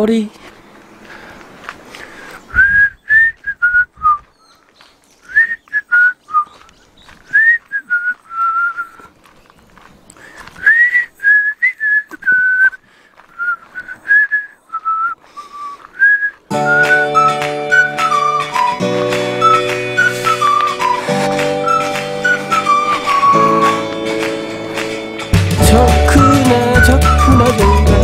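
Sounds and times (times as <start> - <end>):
person whistling a tune: 2.5 - 4.3, 5.3 - 6.6, 7.3 - 9.1, 10.6 - 12.8, 13.4 - 24.3, 25.6 - 28.0.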